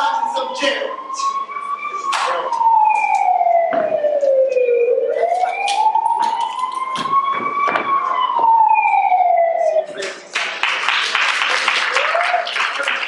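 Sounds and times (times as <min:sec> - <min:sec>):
police siren wailing: 0:00.0 - 0:10.3, 0:11.8 - 0:12.8
sharp knocks: 0:07.0 - 0:08.6.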